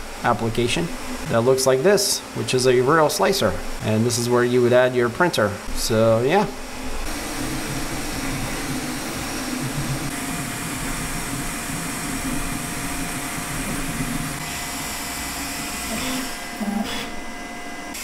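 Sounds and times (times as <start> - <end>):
cooling fans whooshing: 0.0 - 18.0
stepper motor whirring: 6.8 - 17.0.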